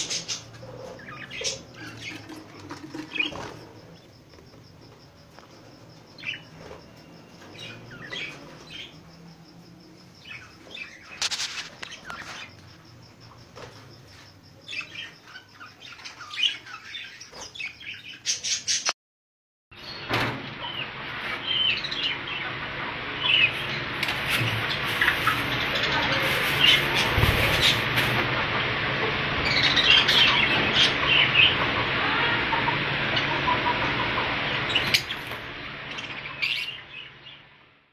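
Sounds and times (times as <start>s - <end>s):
budgerigars chirping and chattering: 0.0s - 4.1s, 7.4s - 9.0s, 14.1s - 18.9s, 20.6s - 28.3s, 29.4s - 37.4s.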